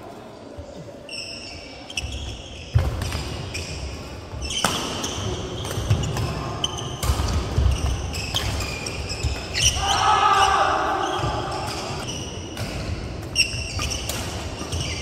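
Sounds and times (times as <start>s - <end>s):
shoes squeaking on court: 1.0s - 9.8s, 11.0s - 15.0s
racket hitting shuttlecock: 4.5s - 9.8s, 11.1s - 15.0s.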